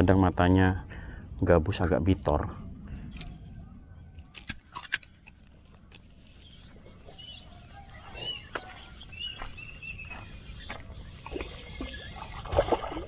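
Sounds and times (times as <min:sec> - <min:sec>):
steady low rumble: 0:00.0 - 0:04.2.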